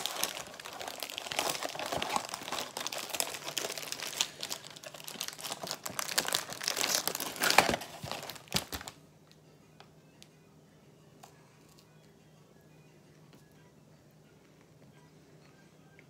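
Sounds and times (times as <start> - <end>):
cookie packaging crinkling and tearing: 0.0 - 9.0.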